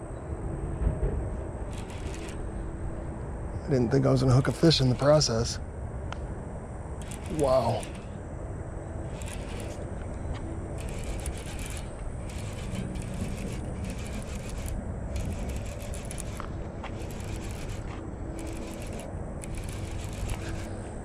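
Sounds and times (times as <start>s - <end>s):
rubbing and scraping on microphone: 1.7s - 2.4s, 10.8s - 20.8s.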